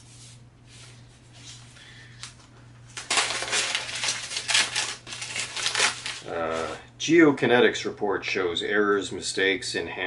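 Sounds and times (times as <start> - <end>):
paper crinkling and crackling: 1.3 - 6.8.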